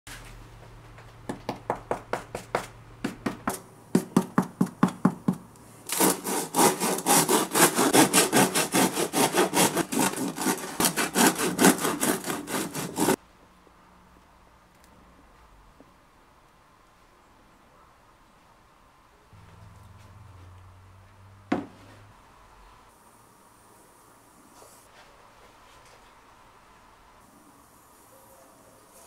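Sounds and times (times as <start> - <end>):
knife sawing through crusty bread: 5.9 - 13.2.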